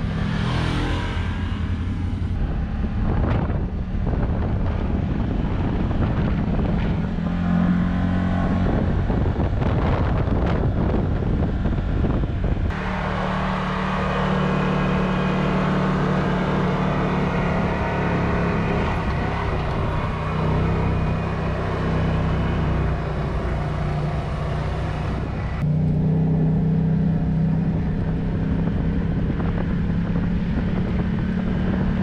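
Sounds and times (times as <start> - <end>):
tyre and wind noise: 0.0 - 12.8, 27.0 - 32.0
utility vehicle engine running: 0.0 - 32.0.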